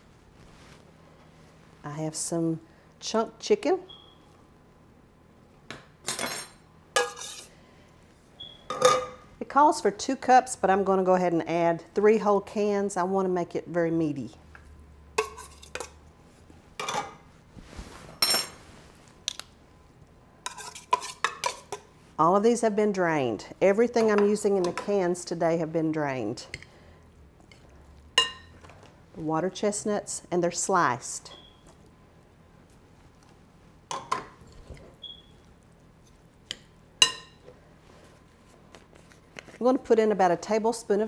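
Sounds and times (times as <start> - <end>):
metal spoon scraping tin can: 7.0 - 7.5, 20.5 - 21.7
spoon stirring moist filling: 7.0 - 7.6, 15.2 - 16.0, 20.4 - 22.0, 26.5 - 28.8.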